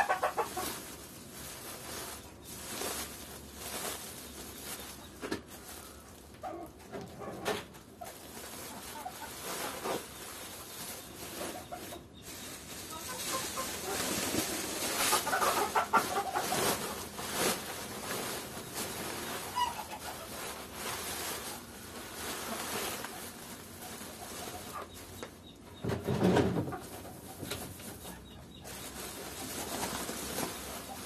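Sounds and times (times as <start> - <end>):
sack and straw rustling: 0.0 - 6.4, 8.0 - 25.3, 26.5 - 31.0
chickens clucking: 0.0 - 31.0.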